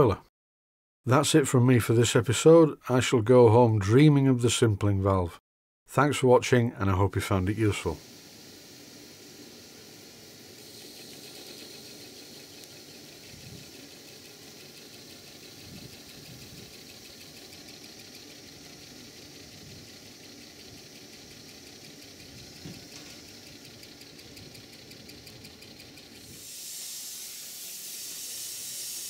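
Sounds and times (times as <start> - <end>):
steam locomotive hum and hiss: 7.4 - 29.0.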